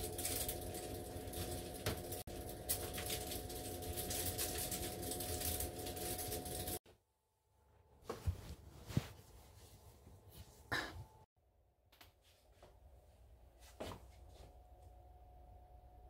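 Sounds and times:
clothes rustling: 8.0s - 11.2s.

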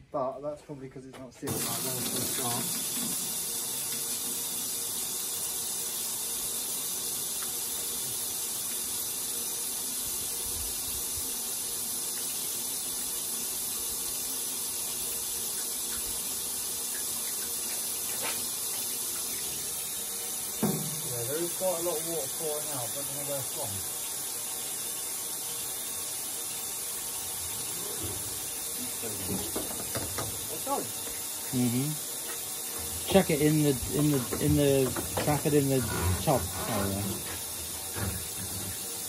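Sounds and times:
water splashing onto tub: 1.5s - 5.4s, 15.3s - 23.2s, 23.8s - 39.0s.

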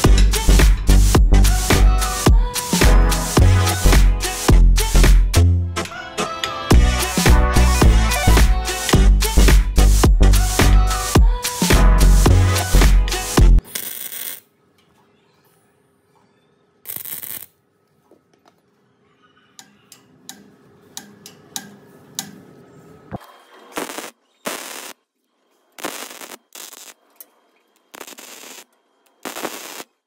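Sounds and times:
crackling welding bursts: 13.2s - 14.5s, 16.9s - 17.6s, 23.2s - 25.0s, 25.8s - 27.0s, 27.8s - 30.0s.

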